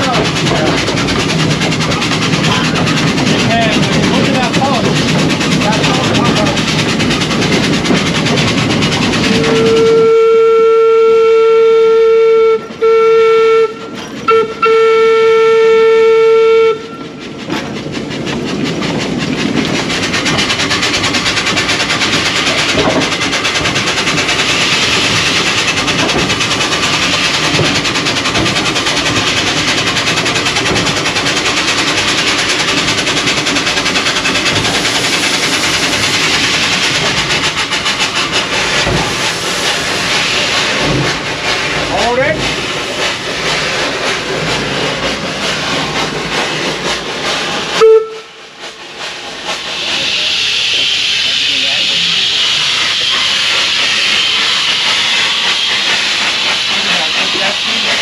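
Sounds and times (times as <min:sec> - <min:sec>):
wheels clattering on track: 0:00.0 - 0:10.3, 0:13.7 - 0:14.6, 0:16.8 - 0:58.0
steam exhaust hissing: 0:00.0 - 0:58.0
steam whistle blast: 0:09.4 - 0:17.1, 0:47.8 - 0:48.4.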